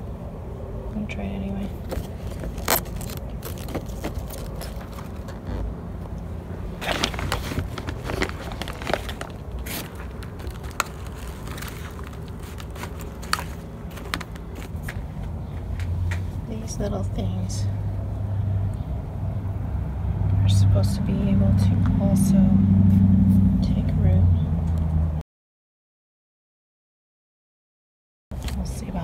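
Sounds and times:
low background rumble: 0.0 - 25.2
plastic bag crinkling: 1.8 - 5.6, 6.8 - 14.9
scrapes: 1.8 - 5.7, 6.8 - 15.0.

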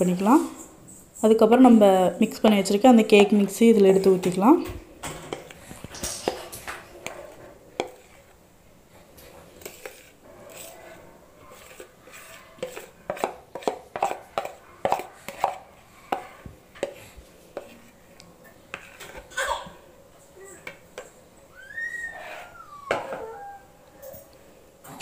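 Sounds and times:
spoon scraping batter in bowl: 5.3 - 19.3, 22.1 - 22.6.

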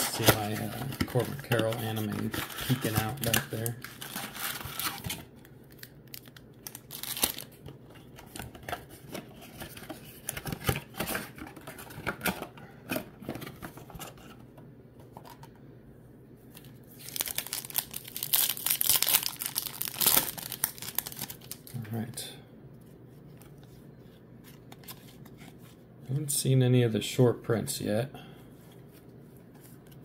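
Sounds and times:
foil card pack crinkling: 0.0 - 7.6, 17.0 - 21.9.

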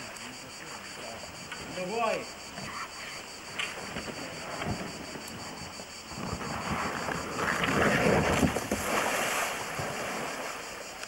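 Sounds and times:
water splashing: 0.0 - 11.0
kayak sliding on rock: 2.6 - 11.0.

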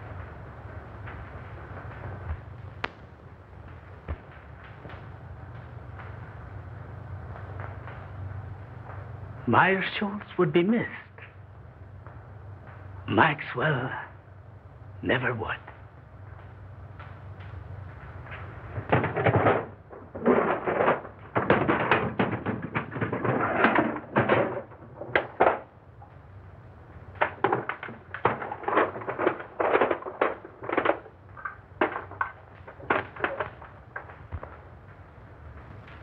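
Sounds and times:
objects clattering and scraping: 18.0 - 26.2, 27.1 - 34.8.

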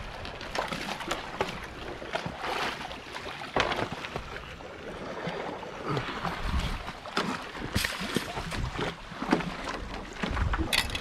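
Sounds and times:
small waves splashing: 0.0 - 11.0
wire crab pot clicking and rattling: 10.7 - 11.0.

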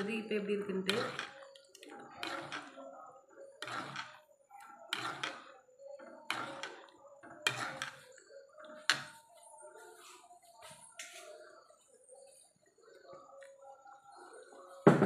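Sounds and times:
metal ladle scraping a pan: 0.8 - 2.8, 3.6 - 4.3, 4.9 - 8.1.

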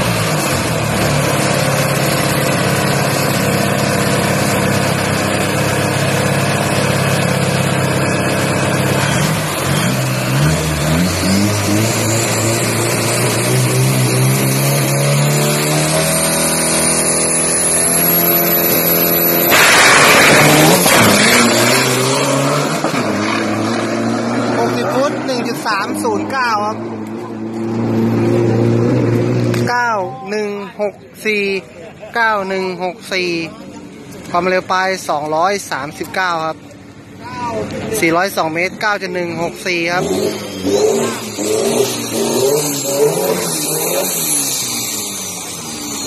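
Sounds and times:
diesel truck engine revving: 0.0 - 29.9, 34.1 - 46.0
truck launching blast: 9.2 - 24.4
turbo whistle: 15.6 - 21.6.

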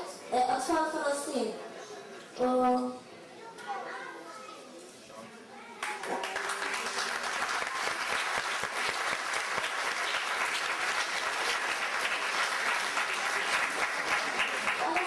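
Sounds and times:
audience applauding: 5.8 - 15.0.

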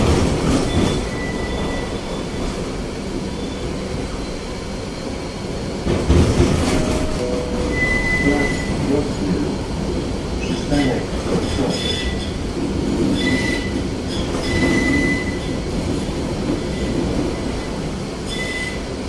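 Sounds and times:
tram wheels rumbling on rail: 0.0 - 19.0
high wheel squeal: 0.6 - 2.5, 7.7 - 8.8, 13.1 - 15.6, 16.7 - 18.8.

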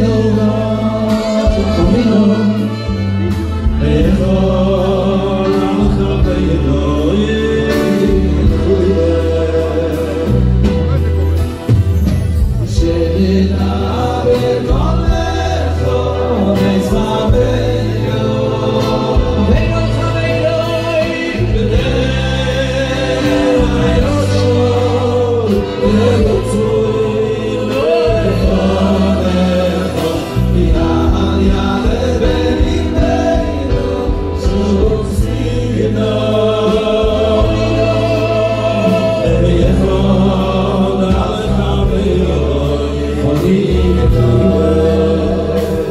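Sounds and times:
men singing into microphones: 0.0 - 11.5, 12.4 - 45.9
low bass backing notes: 0.0 - 45.9.

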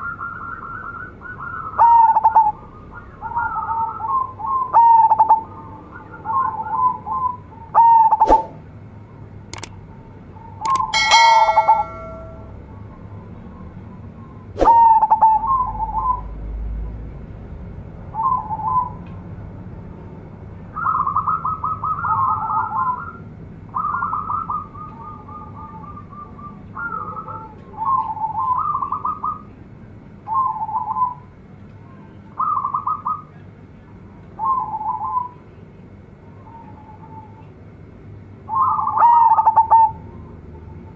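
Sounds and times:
dove cooing song: 0.0 - 8.2, 23.8 - 29.4, 38.5 - 40.0
sharp click: 9.5 - 9.7, 10.7 - 12.3.

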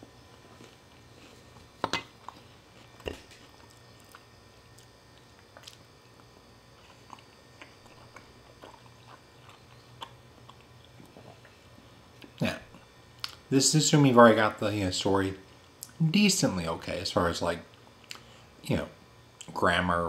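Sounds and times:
close chewing: 0.2 - 13.4.

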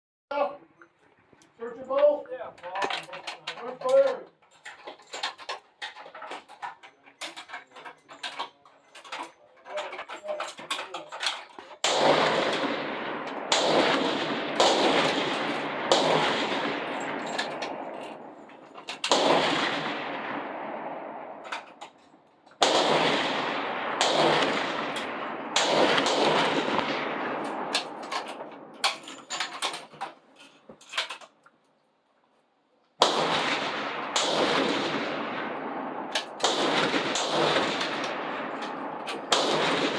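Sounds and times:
rifle shots echoing: 9.9 - 30.0, 33.0 - 39.9.

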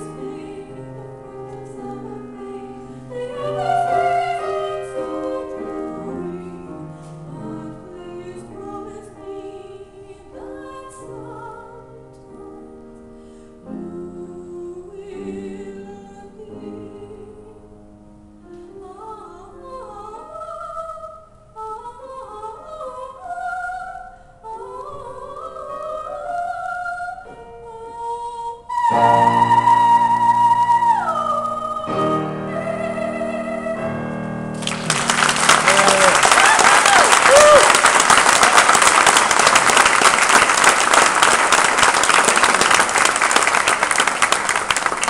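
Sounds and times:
woman singing soprano: 0.0 - 12.6, 13.7 - 17.8, 18.5 - 34.2
piano chord: 28.7 - 36.4
audience applauding: 34.6 - 45.0.

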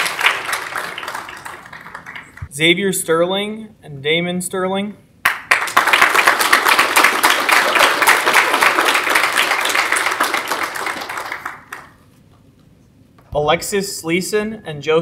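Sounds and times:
audience applauding: 0.0 - 2.5, 5.3 - 12.0.

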